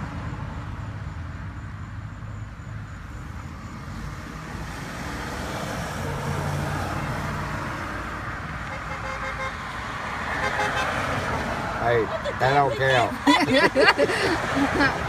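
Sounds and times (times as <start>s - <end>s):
vehicles passing: 0.0s - 15.0s.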